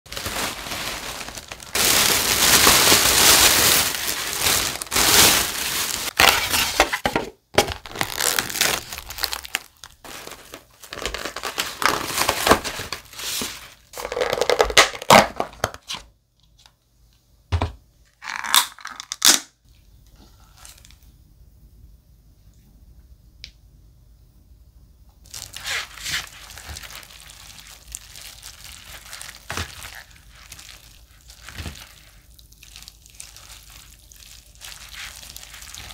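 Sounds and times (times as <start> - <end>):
plastic bag rustling and crinkling: 0.1 - 15.5, 20.2 - 21.0, 25.2 - 35.9.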